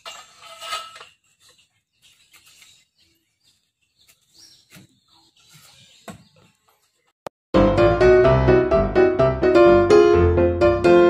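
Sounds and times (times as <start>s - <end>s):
birds chirping: 1.3s - 7.2s.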